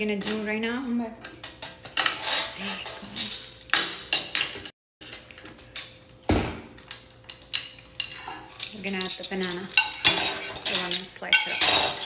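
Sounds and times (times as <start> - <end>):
utensils clinking on dishes: 1.2 - 12.0.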